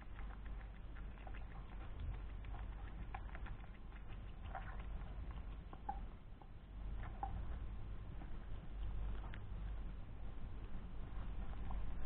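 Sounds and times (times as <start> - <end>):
hedgehog chewing food: 0.0 - 12.0
low steady hum: 0.0 - 12.0.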